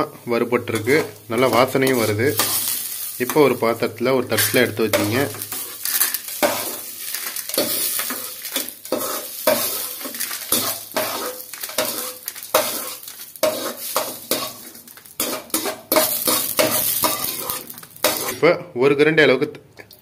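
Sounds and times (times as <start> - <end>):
hot oil sizzling: 0.0 - 18.4
metal skimmer scraping pan: 4.3 - 18.4
food clattering onto steel plate: 4.4 - 18.4.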